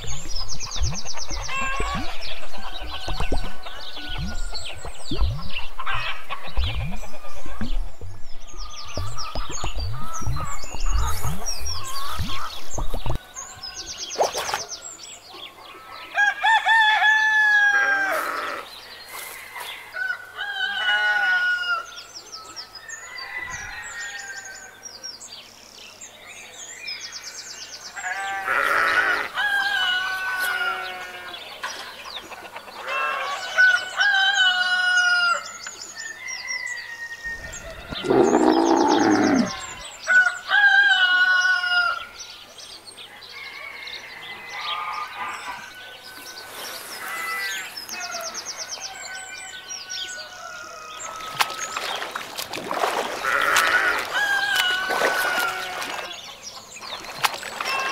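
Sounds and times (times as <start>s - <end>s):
animal crowing calls: 37.8s - 39.8s, 53.1s - 56.1s
deep loud animal call: 37.9s - 39.8s.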